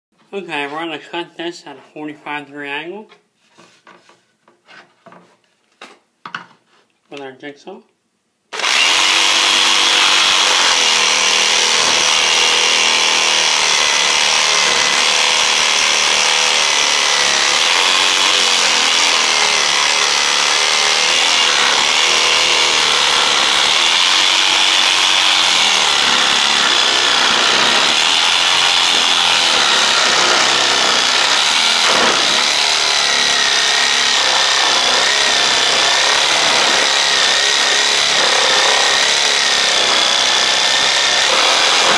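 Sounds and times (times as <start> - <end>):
jigsaw cutting wood: 8.5 - 41.9.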